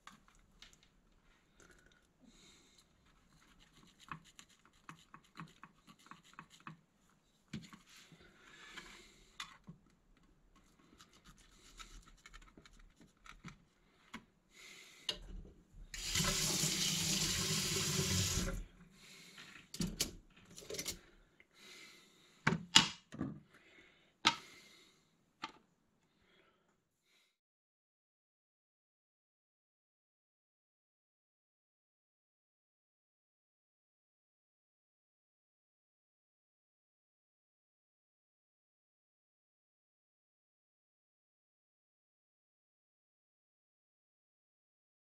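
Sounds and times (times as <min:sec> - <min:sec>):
tap running into sink: 0:16.0 - 0:18.6.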